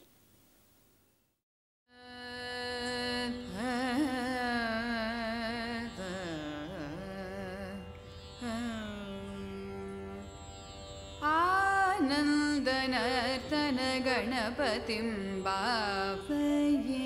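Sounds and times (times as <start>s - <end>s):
classical vocal melody with ornaments: 2.0s - 7.8s, 8.4s - 10.2s, 11.2s - 17.0s.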